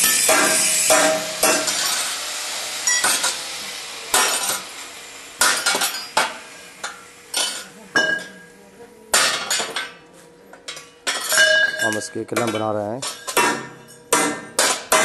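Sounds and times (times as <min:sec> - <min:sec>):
steel pieces clinking: 0:00.0 - 0:02.2, 0:02.8 - 0:03.4, 0:05.4 - 0:08.4, 0:10.7 - 0:14.9
hammer striking steel: 0:00.0 - 0:08.5, 0:09.1 - 0:10.0, 0:10.6 - 0:15.0.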